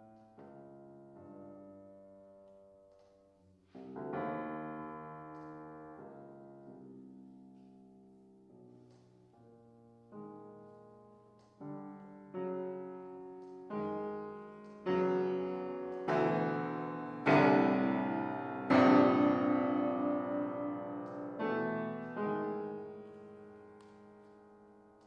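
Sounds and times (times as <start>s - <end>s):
grand piano chords: 3.7s - 25.0s.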